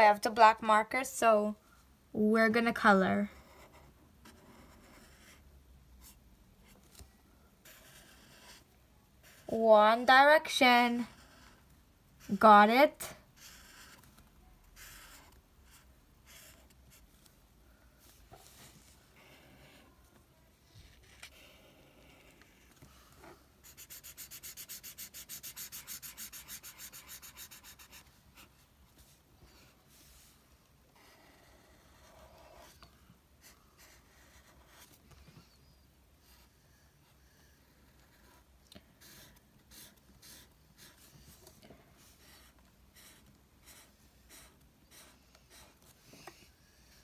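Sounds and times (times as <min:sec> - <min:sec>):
marker scrubbing on paper: 0:07.6 - 0:08.6, 0:09.2 - 0:09.8, 0:13.4 - 0:14.0, 0:14.8 - 0:17.1, 0:23.6 - 0:28.6, 0:39.0 - 0:41.4, 0:42.0 - 0:47.0.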